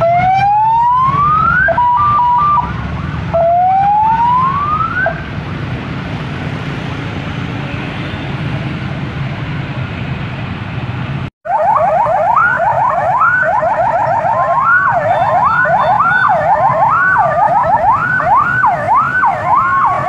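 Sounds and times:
electronic police siren: 0:00.0 - 0:05.3, 0:11.5 - 0:20.0
engine idling and passing: 0:00.0 - 0:20.0.

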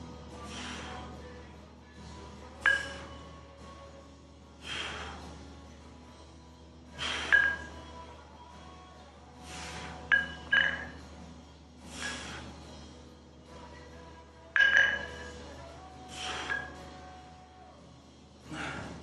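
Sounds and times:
hard exhaled breaths: 0:00.4 - 0:01.4, 0:04.6 - 0:05.5, 0:06.9 - 0:07.6, 0:09.4 - 0:10.2, 0:11.8 - 0:13.0, 0:16.0 - 0:16.9, 0:18.4 - 0:19.0
dumbbells clinking: 0:02.4 - 0:03.2, 0:07.0 - 0:08.0, 0:09.6 - 0:11.2, 0:14.4 - 0:16.8.

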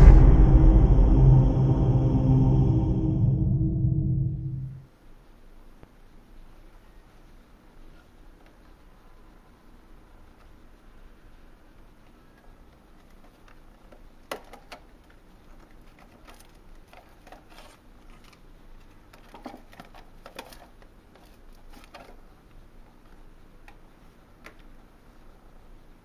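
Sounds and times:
plastic packaging clicks and crinkles: 0:11.8 - 0:24.8.

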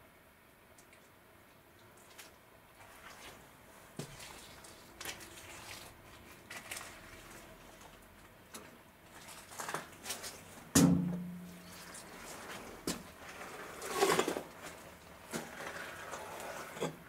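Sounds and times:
footsteps on gritty floor: 0:11.5 - 0:16.8.

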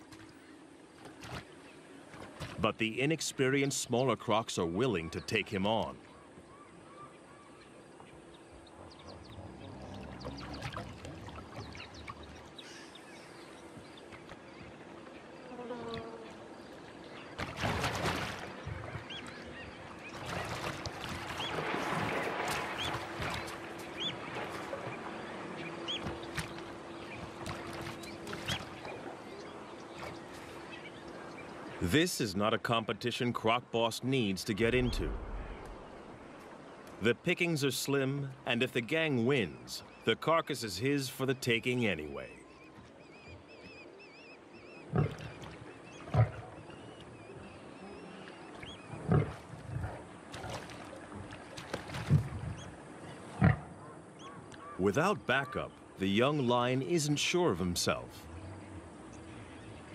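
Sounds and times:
water splashing in shallows: 0:00.0 - 0:04.3, 0:08.7 - 0:15.2, 0:16.2 - 0:40.4, 0:43.7 - 0:59.9
bird chirping: 0:34.4 - 0:36.0.

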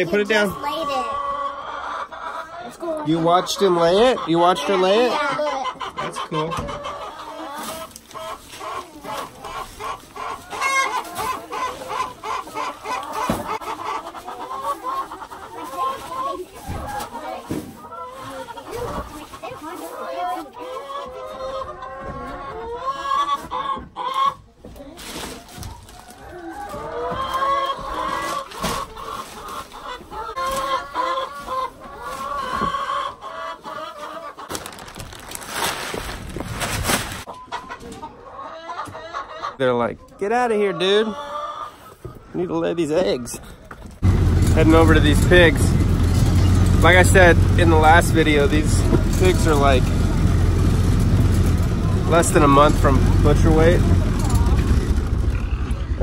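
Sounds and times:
hens clucking: 0:00.0 - 0:56.0
rustling handling noise: 0:34.5 - 0:37.3.

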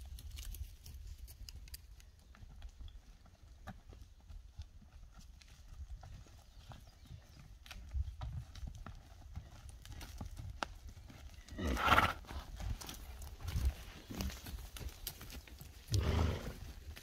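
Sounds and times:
dull hoof steps: 0:00.0 - 0:17.0
horse whinny: 0:11.6 - 0:12.2, 0:15.9 - 0:16.6.

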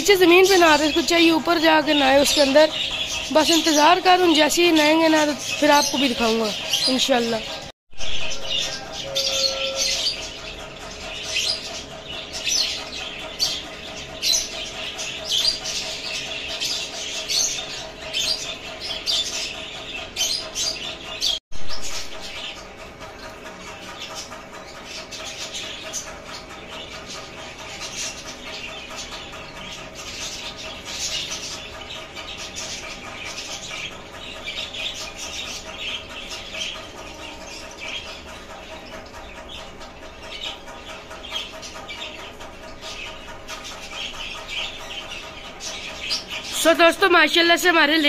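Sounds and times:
birds chirping: 0:00.0 - 0:48.0.

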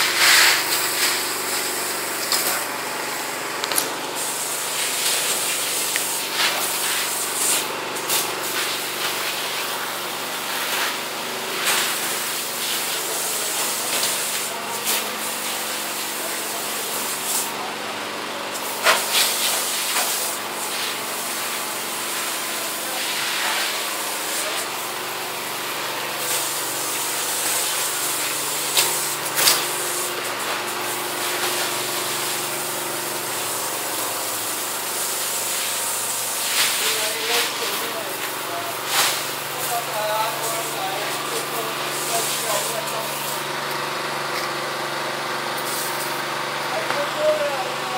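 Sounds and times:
hose nozzle spraying: 0:00.0 - 0:02.7, 0:03.6 - 0:09.6, 0:26.2 - 0:43.4.

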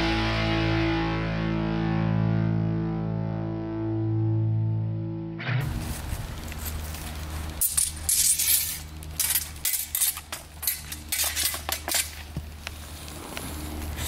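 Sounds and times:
swords and bucklers clashing: 0:07.6 - 0:12.4.

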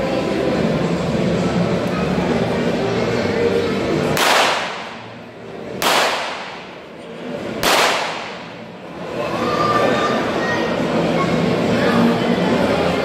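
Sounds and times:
low crowd murmur: 0:00.0 - 0:13.0
cannon shots echoing: 0:04.2 - 0:05.0, 0:05.8 - 0:06.7, 0:07.6 - 0:08.5.

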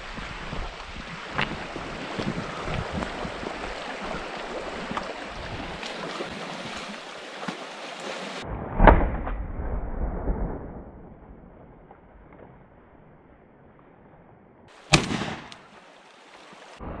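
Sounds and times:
wind on microphone: 0:00.0 - 0:06.8
stream rushing over gravel: 0:00.0 - 0:08.4, 0:14.7 - 0:16.8
animal splashing through water: 0:00.8 - 0:08.4
shotgun blast: 0:14.9 - 0:15.6.

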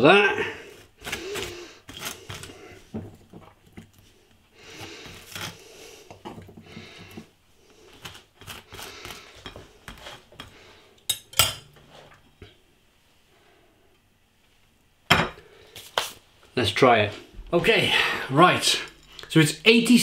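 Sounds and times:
knife scraping peanut butter on toast: 0:01.0 - 0:02.6, 0:04.8 - 0:05.9, 0:07.8 - 0:10.6.

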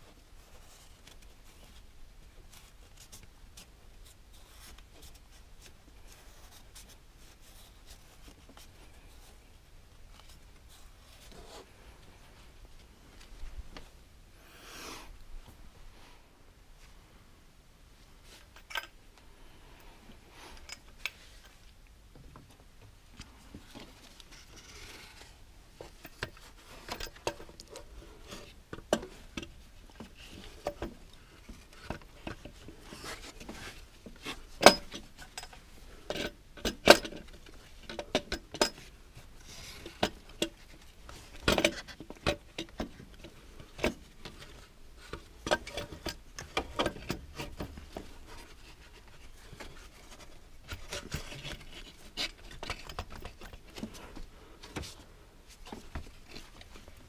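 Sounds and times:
hand tools and metal parts clinking: 0:20.5 - 0:21.6, 0:25.8 - 0:54.8.

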